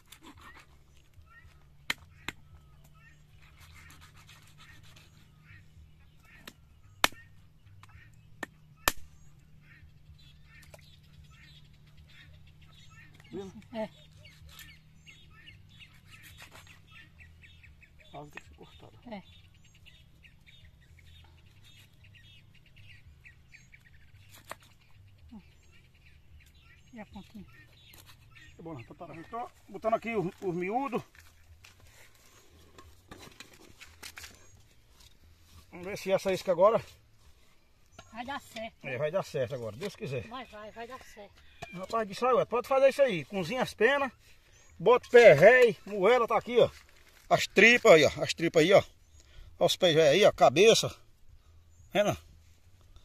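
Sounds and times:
small birds chirping: 0.0 - 53.0
sharp knocks of a hard object: 1.8 - 2.4, 6.4 - 7.2, 7.8 - 9.1.

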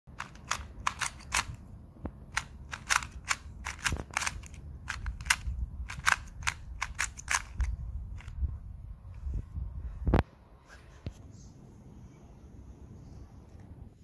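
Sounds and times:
speed cube clicking: 0.2 - 1.6, 2.3 - 8.5.

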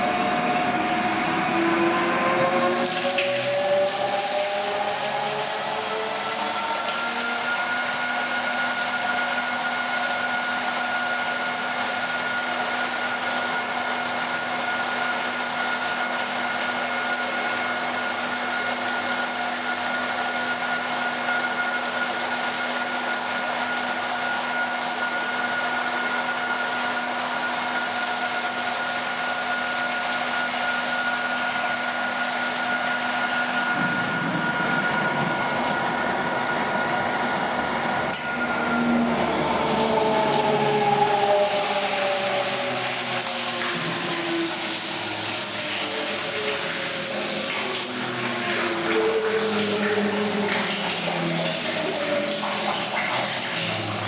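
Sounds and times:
constant whining tones: 0.0 - 54.0
liquid rushing in tank: 0.0 - 54.0
mixer motor whirring: 0.0 - 54.0.

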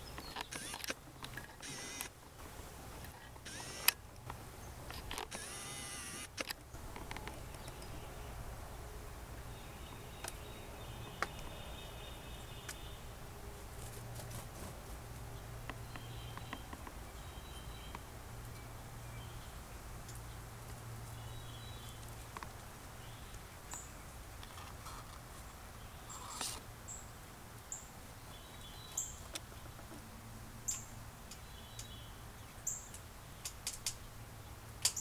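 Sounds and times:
small clicks: 0.1 - 2.1, 3.0 - 7.9.

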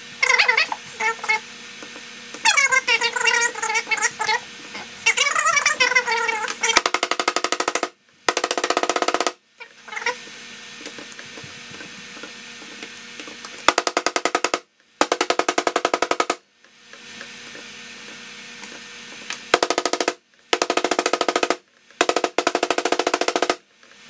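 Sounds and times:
rapid knocks of packing clay: 13.5 - 16.4, 19.5 - 23.6.

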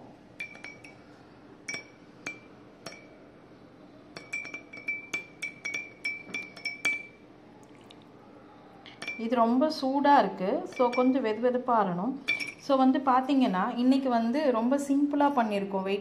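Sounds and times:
spoon clinking in glass cup: 0.4 - 1.0, 1.7 - 3.1, 4.2 - 7.2, 8.9 - 9.3, 10.7 - 11.2, 12.2 - 12.7.

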